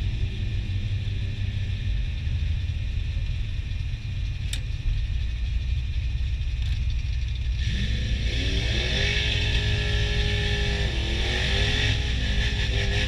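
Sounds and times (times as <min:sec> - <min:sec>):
car engine idling: 0:00.0 - 0:07.8
sharp click: 0:04.5 - 0:04.7.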